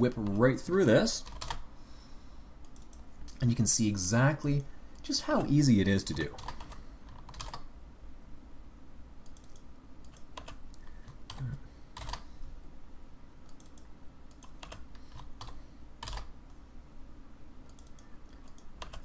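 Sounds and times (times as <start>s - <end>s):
faint low hum: 0.0s - 19.0s
keyboard typing: 1.2s - 1.6s, 6.1s - 7.7s, 9.2s - 12.2s, 13.4s - 16.3s, 17.7s - 19.0s.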